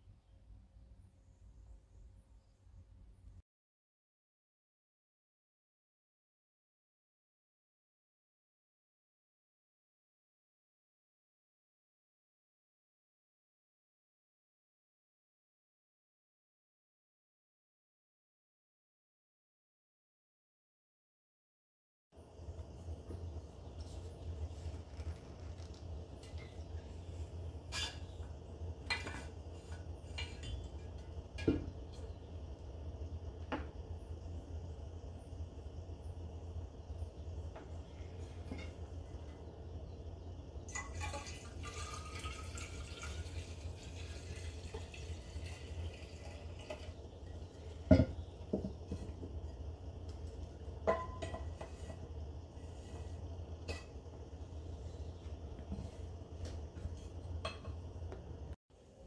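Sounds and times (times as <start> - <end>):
steady low hum: 22.2 - 59.0
bottle knocking on wooden counter: 47.9 - 48.8.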